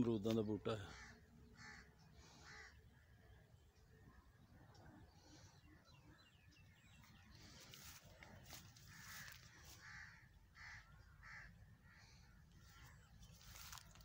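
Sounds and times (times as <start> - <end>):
crow cawing: 0.8 - 2.9, 8.8 - 13.9.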